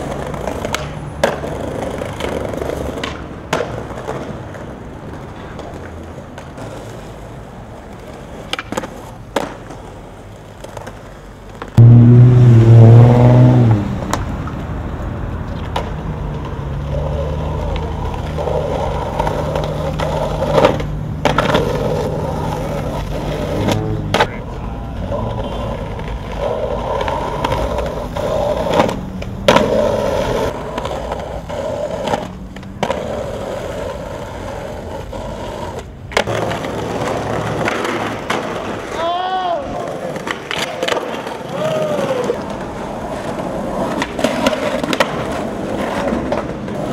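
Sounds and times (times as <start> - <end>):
skateboard pops and landing slaps: 0.0 - 4.7, 8.4 - 9.9, 19.1 - 24.4, 28.6 - 30.0, 39.8 - 46.9
skateboard wheels rolling on pavement: 0.0 - 46.9.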